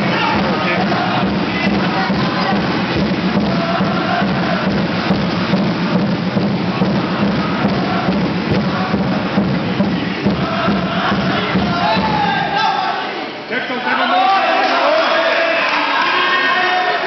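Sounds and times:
music with quick beat: 0.0s - 12.6s.

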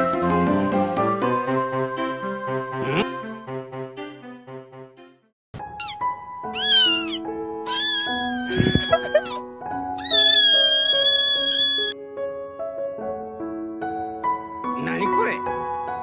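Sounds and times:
slow music with held chords: 0.0s - 5.1s
kitten meowing: 5.7s - 9.4s, 10.0s - 12.0s.

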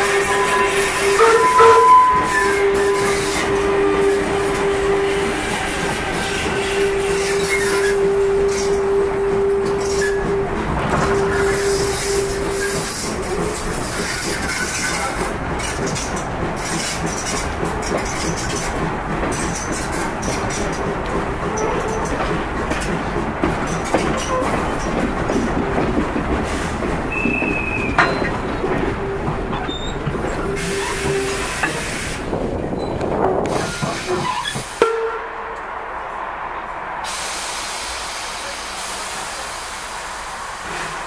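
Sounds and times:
train wheels on track: 0.0s - 41.0s.

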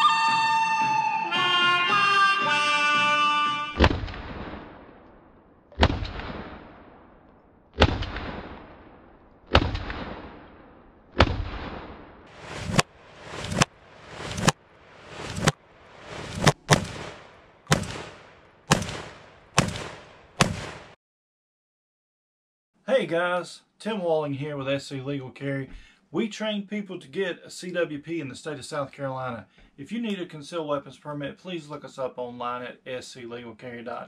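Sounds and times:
shotgun firing with echo: 3.8s - 5.0s, 5.8s - 7.2s, 7.8s - 12.2s, 16.5s - 21.0s.

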